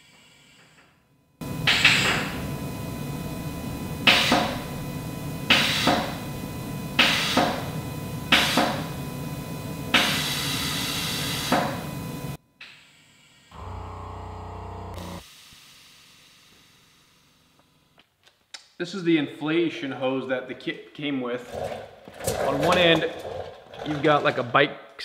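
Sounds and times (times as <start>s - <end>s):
air hissing: 1.4s - 12.1s
air compressor running: 1.4s - 12.4s, 13.5s - 17.2s.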